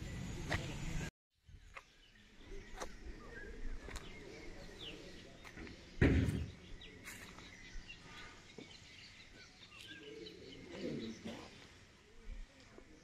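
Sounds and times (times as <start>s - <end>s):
bird chirps: 0.0s - 11.9s
dull thump: 6.0s - 6.6s.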